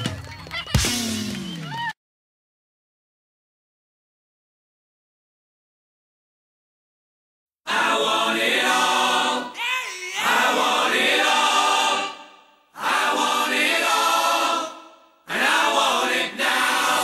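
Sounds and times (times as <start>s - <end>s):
choir singing held chords: 7.7s - 17.0s.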